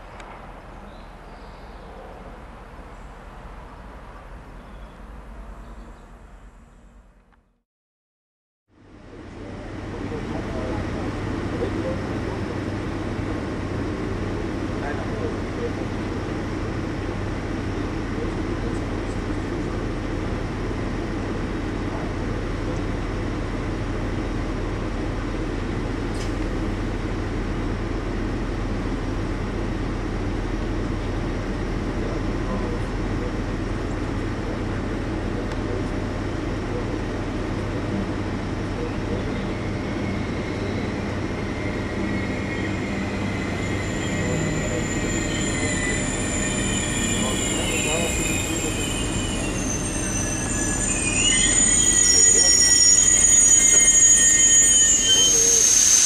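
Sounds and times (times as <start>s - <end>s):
electric locomotive rumbling: 8.7s - 56.0s
wheel squeal: 39.1s - 56.0s.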